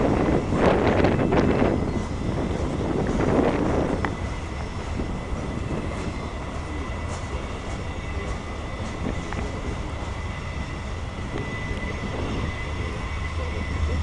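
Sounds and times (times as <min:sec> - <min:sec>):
faint high whine: 0:00.0 - 0:14.0
freight train cars rumbling: 0:00.0 - 0:14.0.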